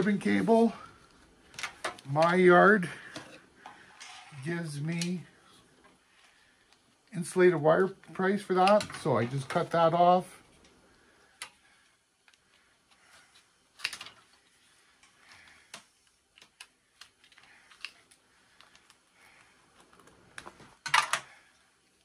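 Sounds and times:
rustling of cable and hands: 0.0 - 22.0.

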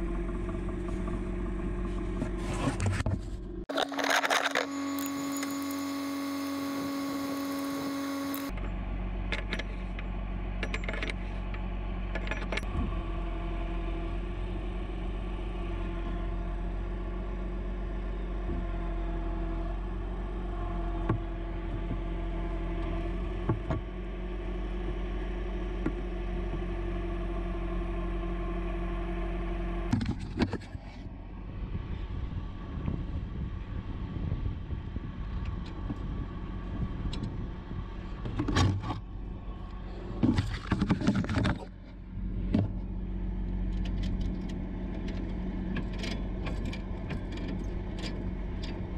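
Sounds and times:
truck engine humming: 0.0 - 28.6
high steady tone: 3.7 - 8.5.

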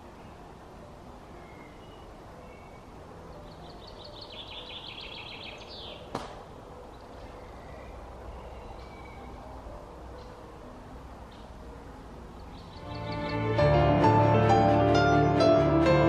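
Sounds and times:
songbird trilling: 1.3 - 6.2, 6.8 - 9.5, 12.3 - 13.4.

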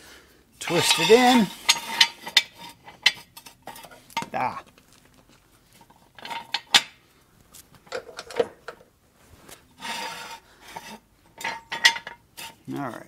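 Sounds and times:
metal clicks and knocks: 7.8 - 8.9
rubbing scrape: 9.2 - 11.0.

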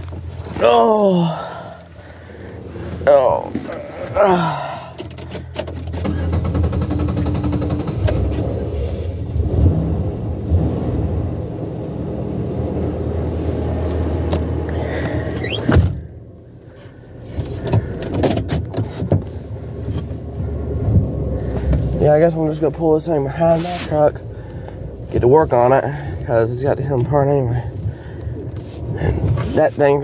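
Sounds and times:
steady low rumble: 0.0 - 5.5, 7.8 - 15.4, 19.2 - 30.0
car door shutting: 14.2 - 16.1.

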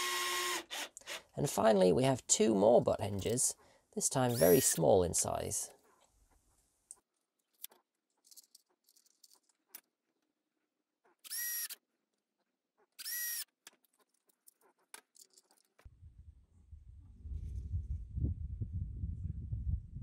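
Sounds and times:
cordless drill spinning: 0.0 - 1.4, 4.2 - 4.8, 11.2 - 11.9, 12.9 - 14.0
low rumble: 15.9 - 20.0.

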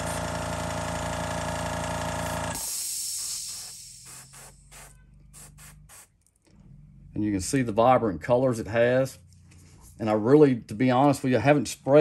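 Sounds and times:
airbrush hissing: 2.5 - 6.1.

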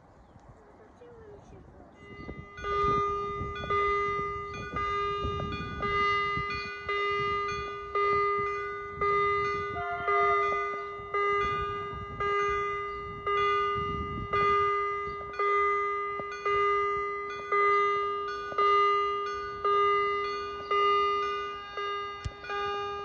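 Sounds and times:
level crossing warning bell ringing: 1.8 - 23.0.

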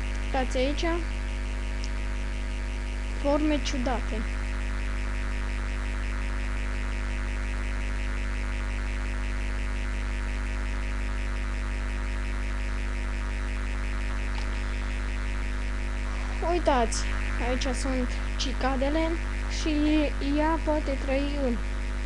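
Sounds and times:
electrical mains hum: 0.0 - 22.0
fast even pulsing: 13.9 - 21.8.

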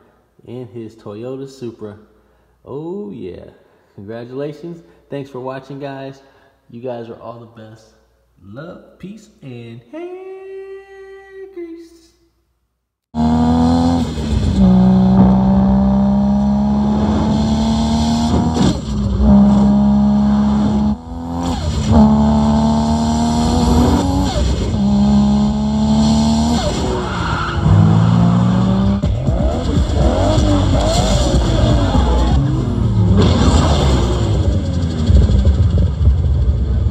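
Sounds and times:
race car engine accelerating: 13.2 - 36.9
tire squeal: 26.4 - 34.8.

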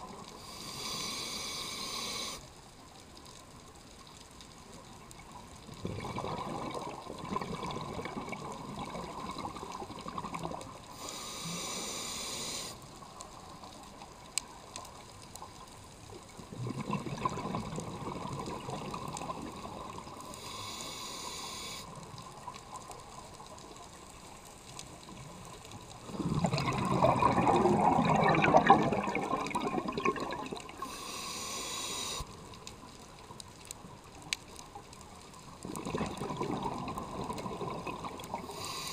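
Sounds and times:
regulator inhaling hiss: 0.3 - 2.5, 10.9 - 12.9, 20.2 - 22.0, 30.8 - 32.4, 38.4 - 38.9
exhaled bubbles underwater: 5.6 - 11.0, 16.4 - 20.4, 26.0 - 31.0, 35.5 - 38.9.

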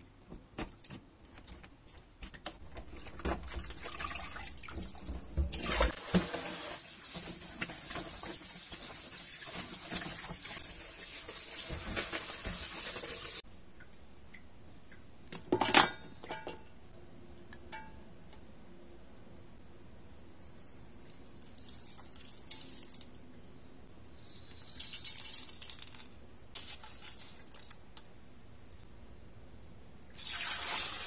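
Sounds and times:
tap water running: 2.7 - 13.4, 30.2 - 31.0.

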